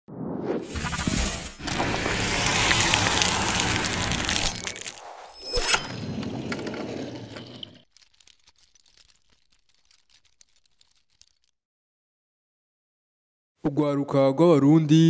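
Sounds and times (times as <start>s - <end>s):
noisy whooshing sweep: 0.1s - 5.4s
faint crackling ticks: 7.8s - 11.6s.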